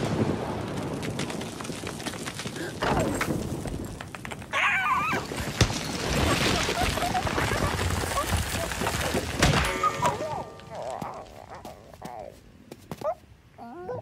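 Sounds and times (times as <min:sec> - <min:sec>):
knocks and clatter: 0:00.8 - 0:04.6.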